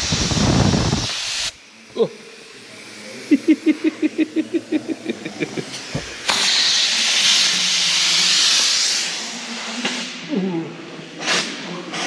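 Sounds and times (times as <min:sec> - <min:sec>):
fluttering air puffs: 0:00.0 - 0:01.6, 0:05.5 - 0:07.7
compressed air hissing: 0:00.0 - 0:02.6, 0:03.4 - 0:10.3.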